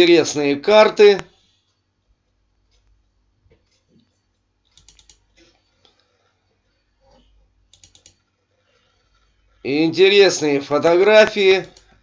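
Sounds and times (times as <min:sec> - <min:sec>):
faint computer mouse clicking: 0:02.7 - 0:06.2, 0:07.1 - 0:08.2, 0:11.6 - 0:12.0.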